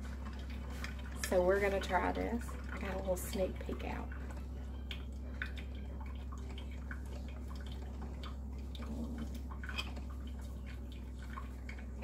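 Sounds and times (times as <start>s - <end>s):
person chewing food: 0.0s - 1.4s, 2.5s - 12.0s
steady low hum: 0.0s - 12.0s.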